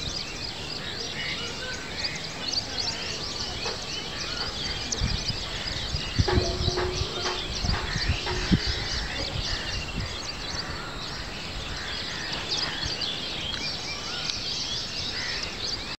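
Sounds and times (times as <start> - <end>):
dull knock: 6.3 - 9.4.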